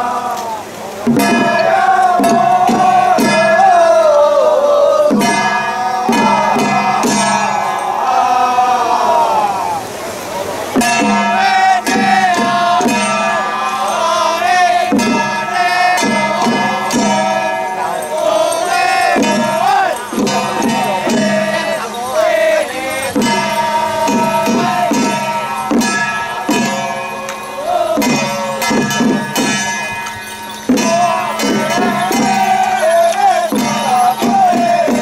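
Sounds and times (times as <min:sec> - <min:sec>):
crowd noise: 0:00.0 - 0:35.0
drum strikes: 0:01.0 - 0:08.1, 0:10.7 - 0:35.0
suona melody: 0:10.8 - 0:35.0
gong and cymbal strikes: 0:23.0 - 0:35.0.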